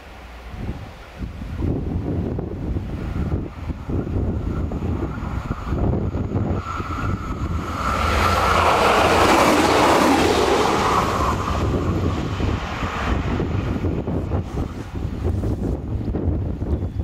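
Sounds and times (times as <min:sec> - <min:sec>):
diesel railcar passing: 0:00.0 - 0:17.0
wind noise on microphone: 0:00.0 - 0:17.0.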